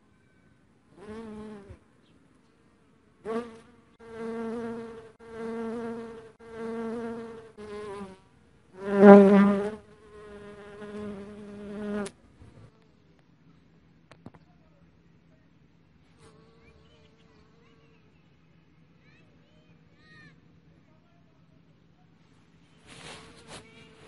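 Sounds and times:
bee buzzing: 0:01.0 - 0:01.8, 0:03.2 - 0:08.2, 0:08.8 - 0:12.8.

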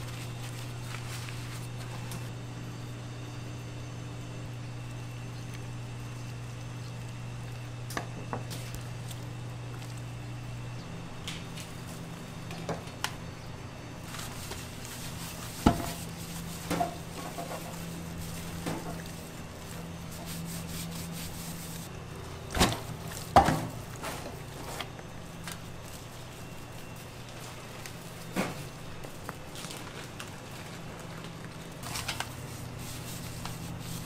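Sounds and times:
hands rubbing wet meat: 0:00.0 - 0:02.3, 0:08.4 - 0:10.2, 0:14.0 - 0:34.0.

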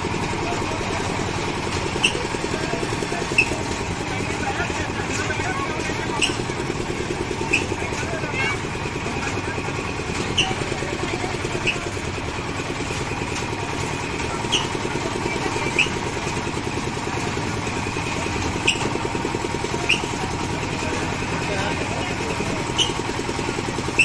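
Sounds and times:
engine running: 0:00.0 - 0:24.0
metal creaks of swing ride: 0:00.0 - 0:24.0.

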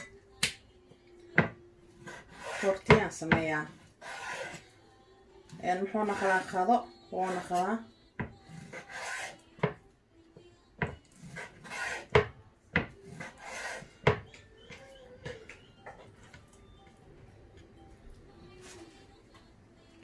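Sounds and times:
knife scraping board: 0:02.0 - 0:04.7, 0:05.8 - 0:07.7, 0:08.4 - 0:09.7, 0:11.1 - 0:12.3, 0:13.0 - 0:14.2.

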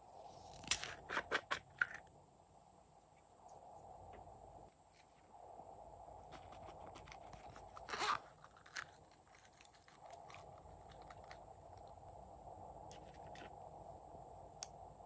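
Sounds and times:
crunchy rustle: 0:06.2 - 0:12.1, 0:12.9 - 0:13.7
squeezing plastic toy: 0:06.3 - 0:11.5.

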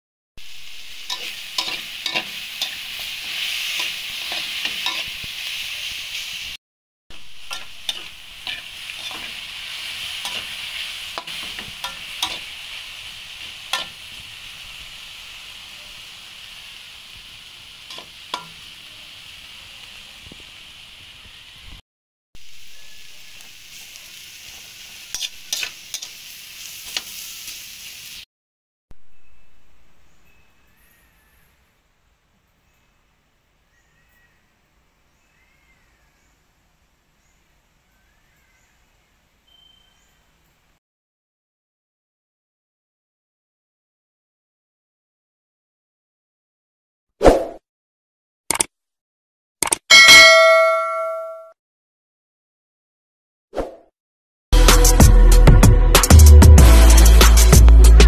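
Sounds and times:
vegetables sizzling in oil: 0:00.4 - 0:21.8, 0:22.4 - 0:28.3
utensil scraping pan: 0:01.0 - 0:05.2, 0:07.4 - 0:12.5, 0:25.1 - 0:26.1.

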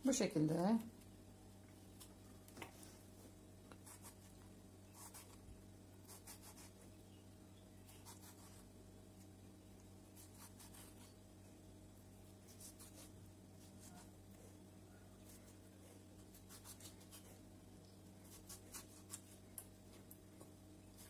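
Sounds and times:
low steady hum: 0:00.0 - 0:21.0
knife scraping through tomatoes: 0:10.2 - 0:11.2, 0:15.2 - 0:17.5.

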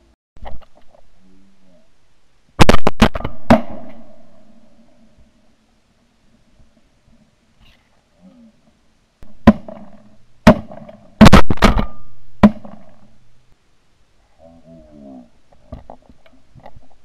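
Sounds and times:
shotgun blasts with echo: 0:02.6 - 0:04.3, 0:09.4 - 0:13.1.

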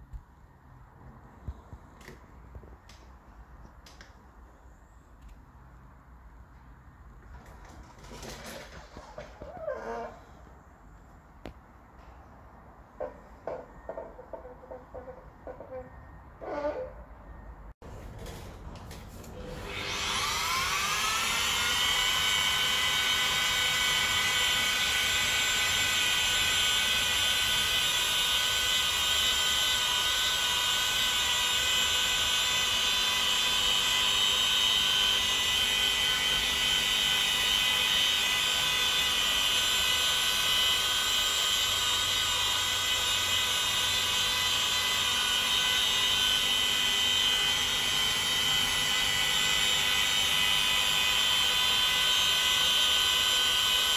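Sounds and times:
rotary polisher whining: 0:19.3 - 0:53.9.

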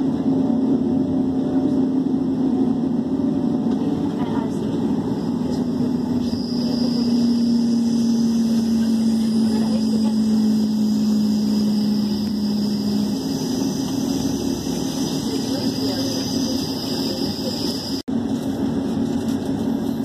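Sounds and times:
droning hum sinking in pitch: 0:00.0 - 0:20.0
train rolling rumble: 0:00.0 - 0:20.0
faint high whine: 0:03.7 - 0:18.1.

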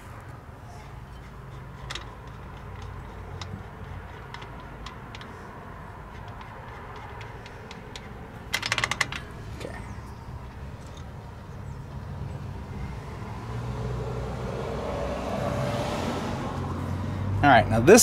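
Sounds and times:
small metallic clicks: 0:01.5 - 0:09.4
rapid loud clicking: 0:01.8 - 0:09.4.

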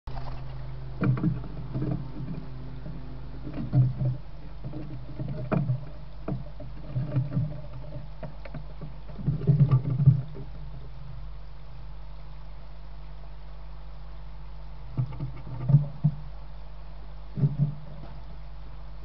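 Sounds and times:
low electrical hum: 0:00.1 - 0:19.0
soft knocks and rustles: 0:17.4 - 0:18.3.

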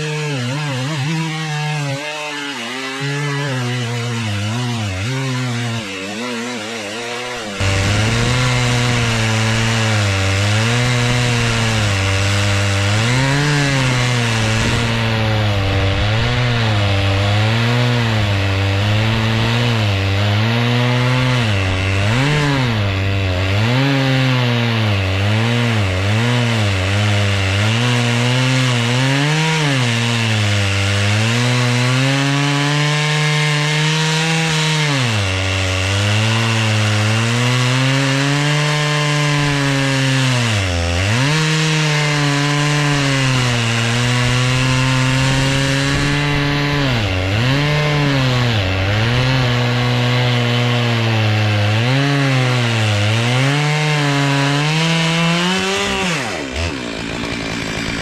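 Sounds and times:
chainsaw ripping through log: 0:00.0 - 0:58.0.

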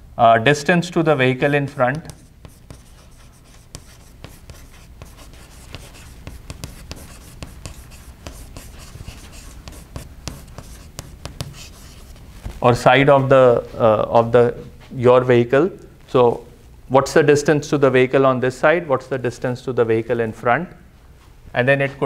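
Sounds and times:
chalk tapping and scratching: 0:01.3 - 0:12.3.

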